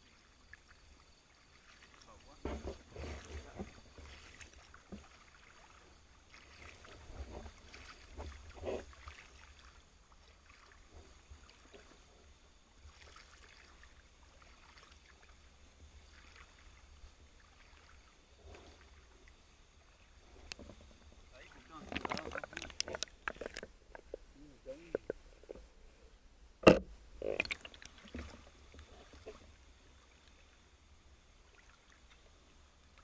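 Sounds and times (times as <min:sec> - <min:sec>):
muffled underwater rumble: 0:01.9 - 0:05.1, 0:15.3 - 0:31.3
soft underwater clicks and knocks: 0:02.4 - 0:05.2, 0:20.3 - 0:25.7, 0:26.6 - 0:29.5.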